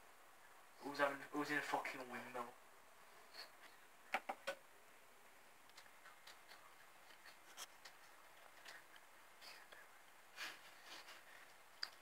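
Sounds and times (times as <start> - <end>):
faint clicks: 11.7 - 12.0.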